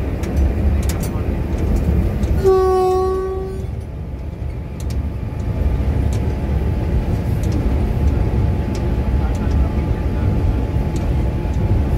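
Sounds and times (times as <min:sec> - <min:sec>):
locomotive rumble from cab: 0:00.0 - 0:11.9
locomotive horn: 0:02.4 - 0:03.7.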